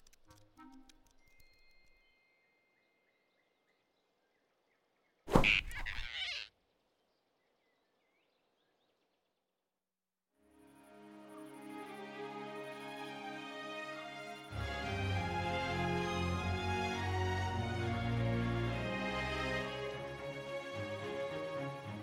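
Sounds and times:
soft music: 0.0s - 2.1s, 10.4s - 22.0s.

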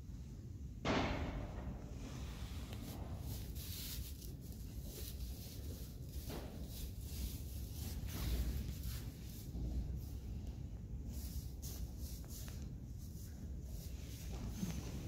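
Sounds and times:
rustling straw: 2.3s - 10.3s.

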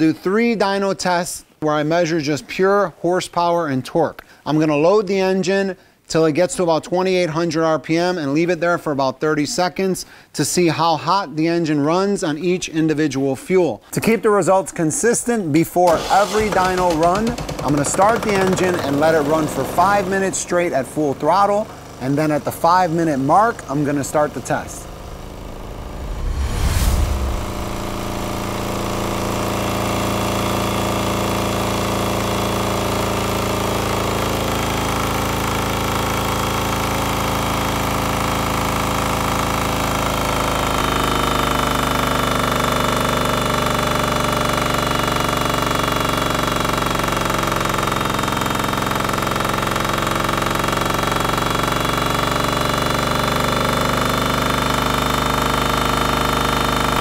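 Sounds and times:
diesel engine running under load: 15.9s - 57.0s
steady high tone: 23.4s - 30.3s.

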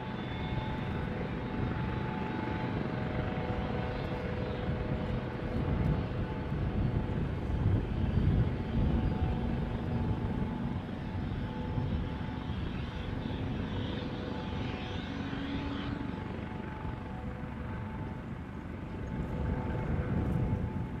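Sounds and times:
helicopter turbine whine: 0.0s - 21.0s.

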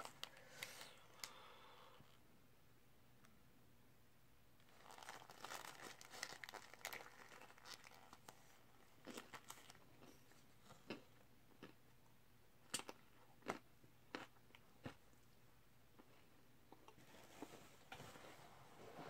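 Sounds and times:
paper wrapper crinkling: 0.0s - 1.3s, 4.6s - 9.8s.

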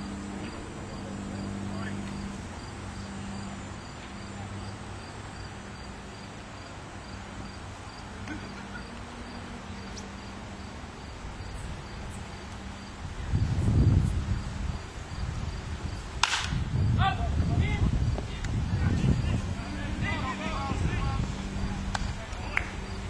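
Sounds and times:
insects chirping: 0.0s - 23.0s
outdoor background noise: 0.0s - 23.0s
low hum: 18.6s - 23.0s.

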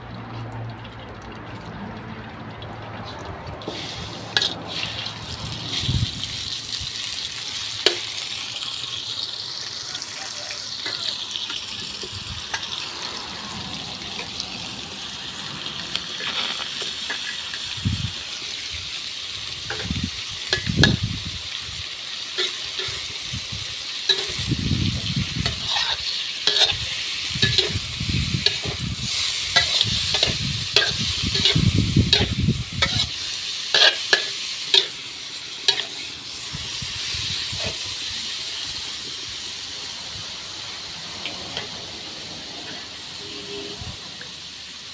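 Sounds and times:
food sizzling in hot oil: 2.8s - 44.9s
metal ladle scraping a wok: 3.0s - 6.4s, 15.9s - 17.8s, 19.6s - 21.3s, 22.2s - 38.0s, 41.2s - 44.3s.

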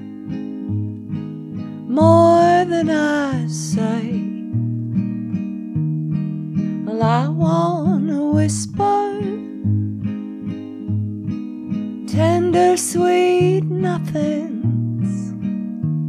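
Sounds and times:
acoustic guitar: 0.0s - 16.0s
person singing: 1.9s - 4.4s, 6.9s - 9.6s, 12.1s - 15.4s.

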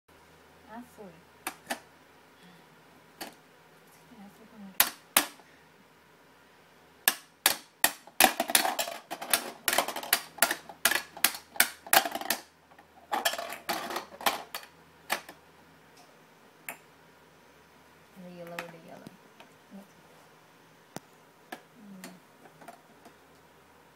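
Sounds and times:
plastic toy hammer clacking: 7.1s - 12.5s.

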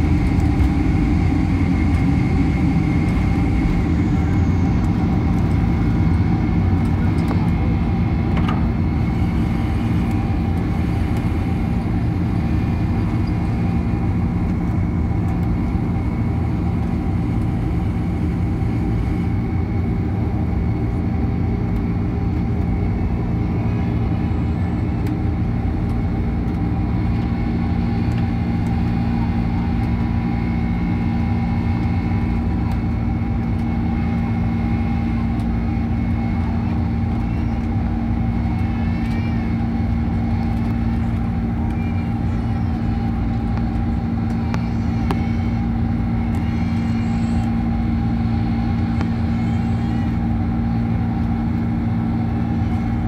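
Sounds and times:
jet engines heard from cabin: 0.0s - 53.0s.

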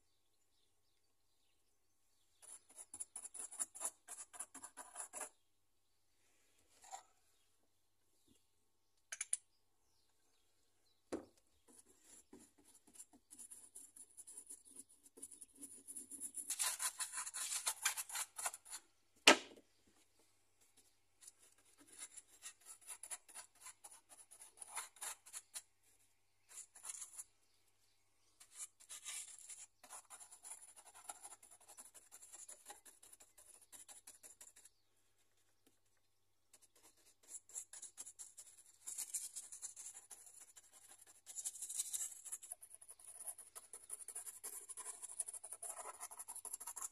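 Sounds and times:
paintbrush scratching on foam: 2.3s - 5.4s, 11.7s - 18.9s, 21.2s - 25.8s, 26.4s - 27.4s, 28.4s - 34.9s, 36.6s - 46.9s.

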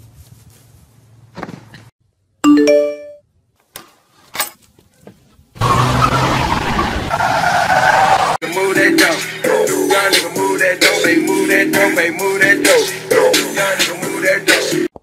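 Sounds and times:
two-note doorbell chime: 2.5s - 3.2s
music with steady beat: 8.4s - 14.9s.

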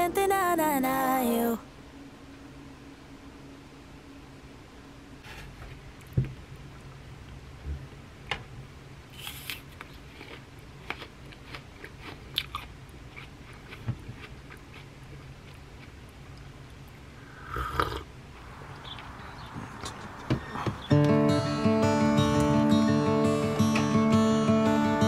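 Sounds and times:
low steady hum: 0.0s - 25.0s
crunchy apple chewing: 9.2s - 16.4s
sip from a mug: 17.3s - 18.1s.

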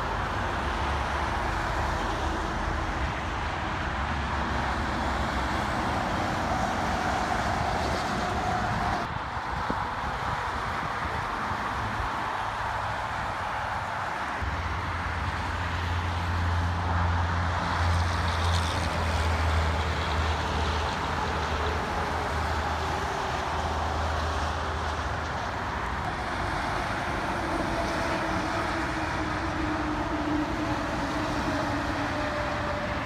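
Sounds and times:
highway traffic: 0.0s - 33.0s
heavy truck diesel drone: 14.4s - 33.0s.

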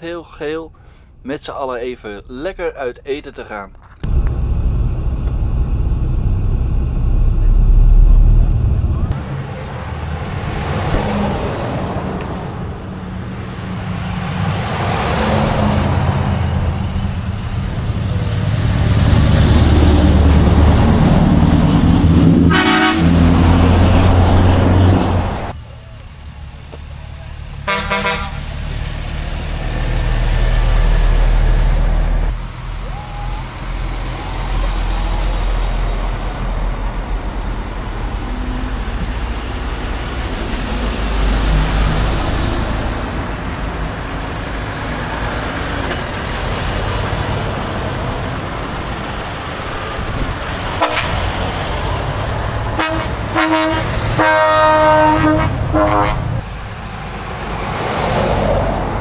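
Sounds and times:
heavy trucks driving past: 4.1s - 59.0s
multi-tone horn blast: 22.4s - 23.7s, 27.6s - 28.5s, 50.8s - 51.3s, 52.8s - 56.4s
truck horn: 22.4s - 23.7s, 27.6s - 28.5s, 50.8s - 51.3s, 52.8s - 56.4s.

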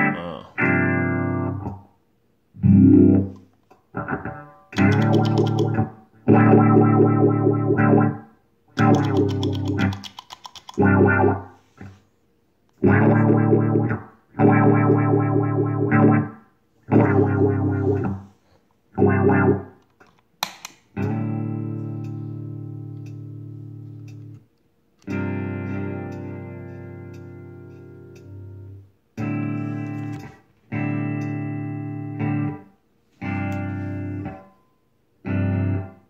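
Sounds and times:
distorted electric guitar chords: 0.0s - 1.9s, 2.6s - 9.9s, 10.8s - 12.0s, 12.8s - 19.8s, 21.0s - 24.4s, 25.0s - 34.5s, 35.2s - 36.0s
sharp click: 4.8s - 5.9s, 8.8s - 10.8s, 19.9s - 21.2s.

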